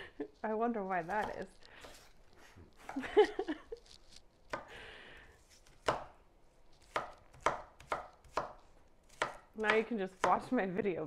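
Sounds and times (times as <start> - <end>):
knife chopping on wooden board: 1.1 - 2.1, 5.6 - 6.2, 6.8 - 10.5
knife crunching through onion: 3.6 - 4.7.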